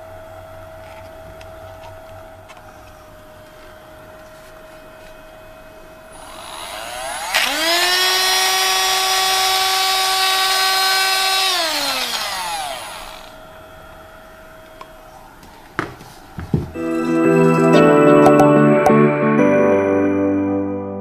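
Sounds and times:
homogenizer high whine: 12.1 - 15.7.

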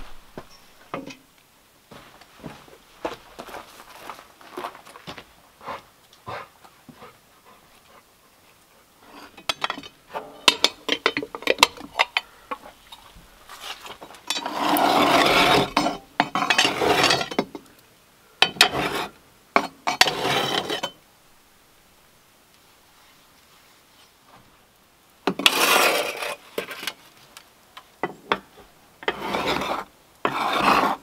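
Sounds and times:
cookware scraping: 9.0 - 12.2, 12.9 - 17.4, 18.4 - 21.0, 29.0 - 31.0
cookware clinking and knocking: 9.4 - 12.2.

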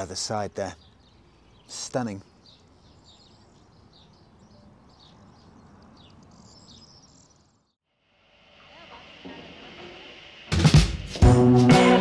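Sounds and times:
small birds chirping: 0.0 - 7.8
faint outdoor background noise: 0.0 - 11.2.

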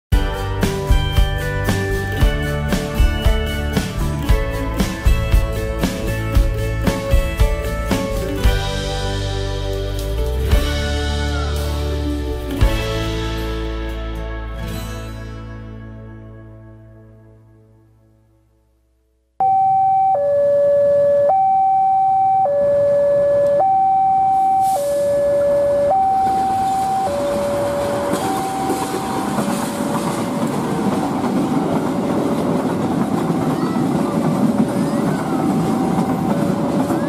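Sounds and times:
freight train running: 0.1 - 14.1, 24.4 - 37.0
two-tone crossing alarm: 19.4 - 29.9.

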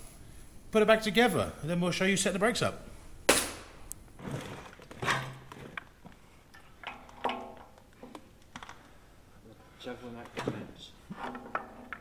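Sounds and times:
metal knocks and clanks: 6.8 - 8.2, 10.2 - 12.0.

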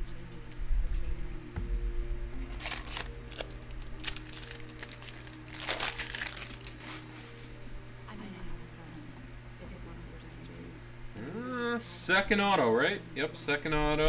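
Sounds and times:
foil wrapper crinkling: 2.4 - 7.7.

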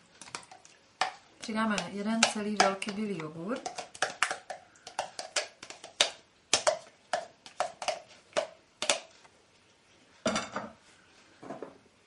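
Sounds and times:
plastic tub tapping ceramic bowl: 0.3 - 9.0.

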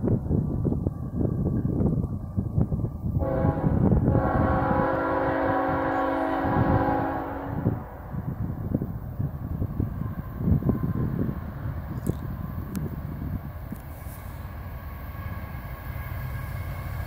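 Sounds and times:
wind buffeting microphone: 0.0 - 17.0
locomotive air horn blast: 3.2 - 8.2.

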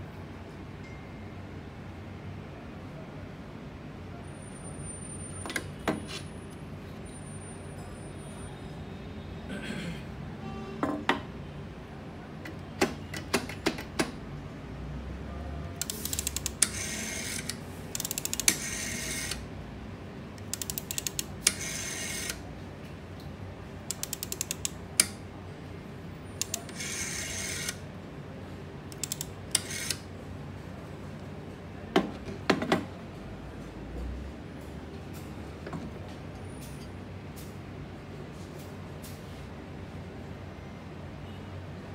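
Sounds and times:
rotary dial ratchet clicks: 15.8 - 19.5, 20.4 - 22.4, 23.9 - 25.2, 26.4 - 27.8, 28.9 - 30.0.

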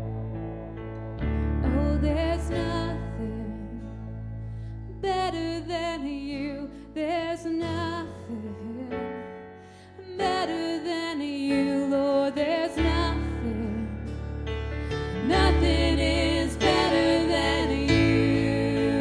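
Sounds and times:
held keyboard chords: 0.0 - 6.4, 8.2 - 19.0
person singing with vibrato: 15.0 - 19.0.

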